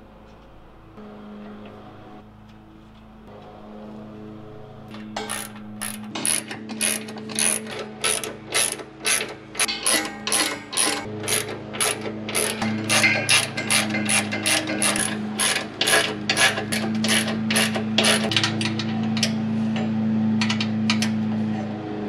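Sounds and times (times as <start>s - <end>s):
ratchet wrench clicking: 5.2s - 19.3s.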